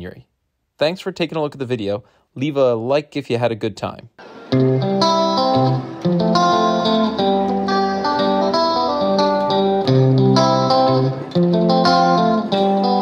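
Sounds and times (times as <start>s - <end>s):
plucked guitar music: 4.2s - 13.0s.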